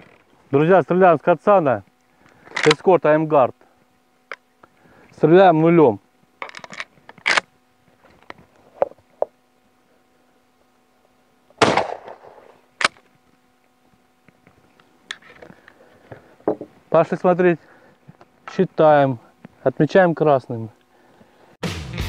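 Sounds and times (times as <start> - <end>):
metallic clicks of gun handling: 6.4 - 7.5
shotgun shot: 11.6 - 12.4.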